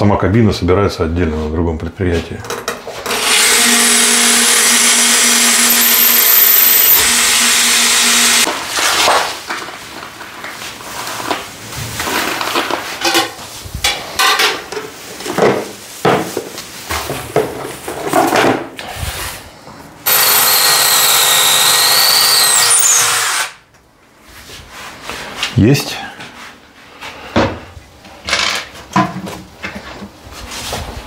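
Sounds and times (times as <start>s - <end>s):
cordless drill drilling into wall: 3.1s - 8.5s, 20.0s - 23.6s.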